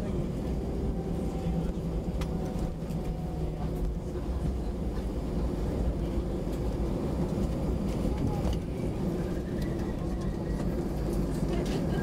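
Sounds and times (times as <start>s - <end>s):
jet landing rumble: 0.0s - 12.0s.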